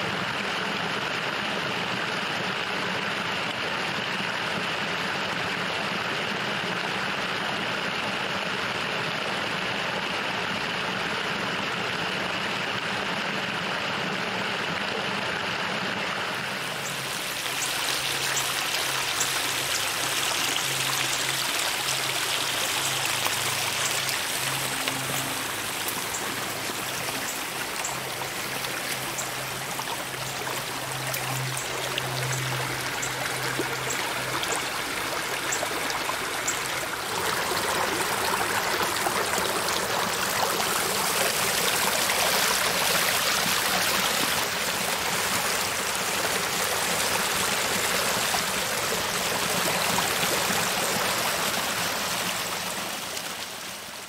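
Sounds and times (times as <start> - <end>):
water splashing from pipe: 16.4 - 54.0.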